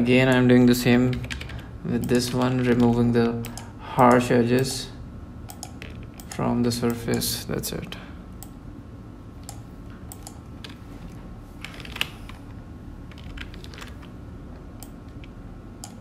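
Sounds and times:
low steady hum: 0.0 - 16.0
keyboard and mouse clicks: 5.5 - 7.2, 9.4 - 10.8, 14.8 - 16.0.

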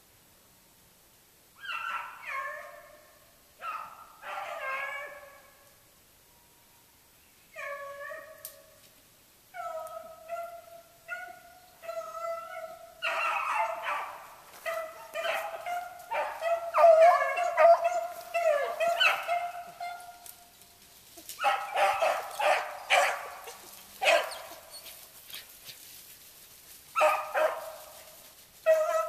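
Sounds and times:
hounds baying: 3.6 - 5.4, 9.6 - 20.3, 21.2 - 25.8, 26.9 - 29.0.

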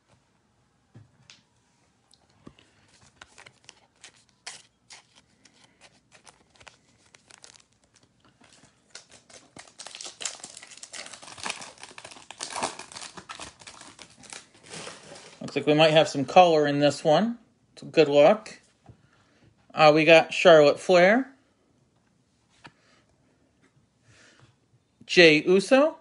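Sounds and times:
foil wrapper crinkling and tearing: 3.0 - 15.5.

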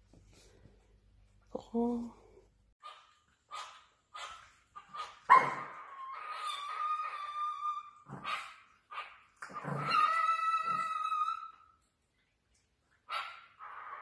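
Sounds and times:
small dog yelping: 2.8 - 11.7
small dog whining: 5.3 - 8.1, 9.4 - 11.8.

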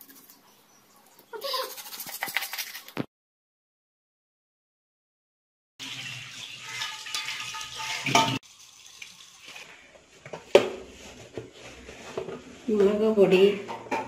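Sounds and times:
pot clattering: 5.8 - 8.4
tap water running into sink: 5.8 - 9.7.

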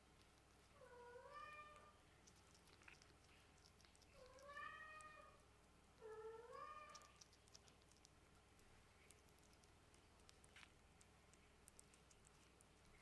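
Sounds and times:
kitten meowing: 4.2 - 5.4, 6.0 - 7.2.

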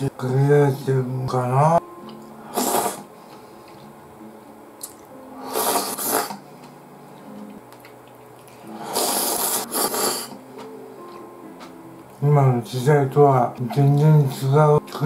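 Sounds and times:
person slurping noodles: 2.5 - 3.1, 5.4 - 6.4, 8.7 - 10.4.

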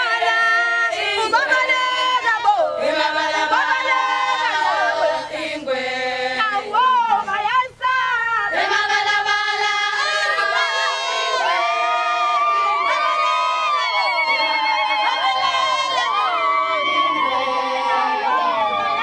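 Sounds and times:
women singing unaccompanied: 0.0 - 19.0.

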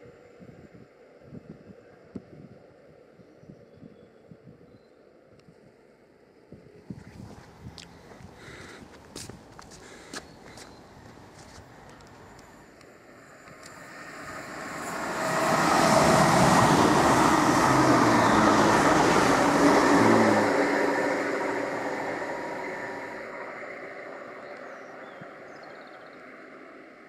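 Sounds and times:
electric train passing: 10.7 - 27.0.

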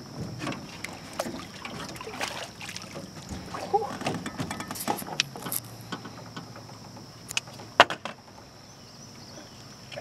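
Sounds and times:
knocks against metal boat: 3.0 - 5.1, 7.7 - 8.2.

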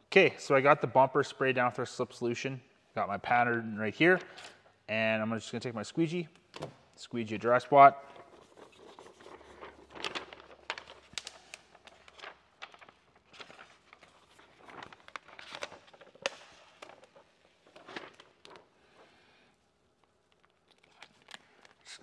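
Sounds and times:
plastic film crinkling: 8.0 - 22.0.

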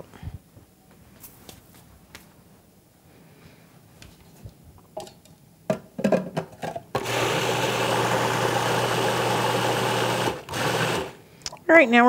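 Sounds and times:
food processor running: 7.0 - 11.2.

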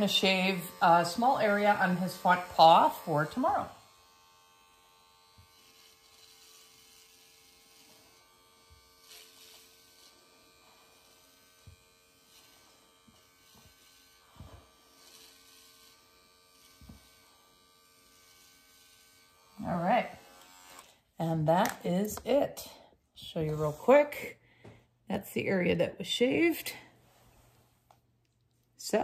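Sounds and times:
dog clipper buzzing: 0.0 - 21.0.

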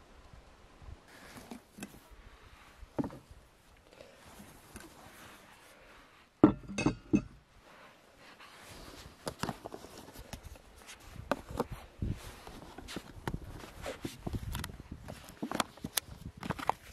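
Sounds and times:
metal bottle clunk on wooden table: 6.4 - 7.4.

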